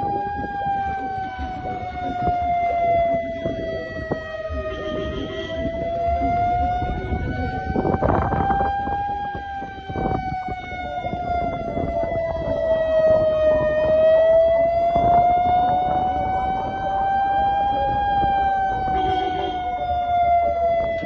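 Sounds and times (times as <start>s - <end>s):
siren wailing: 0.0s - 21.0s.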